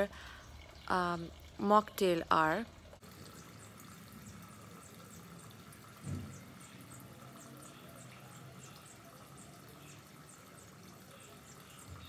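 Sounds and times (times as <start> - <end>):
bird chirping: 3.3 - 12.0.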